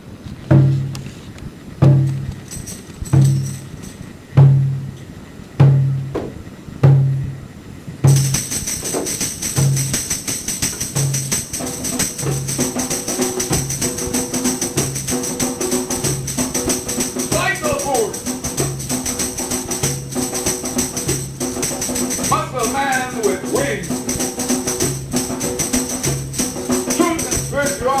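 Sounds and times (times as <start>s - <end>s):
deep drum beating slowly: 0.5s - 1.0s, 1.8s - 2.4s, 3.2s - 5.0s, 5.6s - 7.4s, 8.1s - 10.2s, 10.8s - 28.0s
tambourine jingle: 1.9s - 4.9s, 8.1s - 28.0s
held instrument notes: 8.1s - 28.0s.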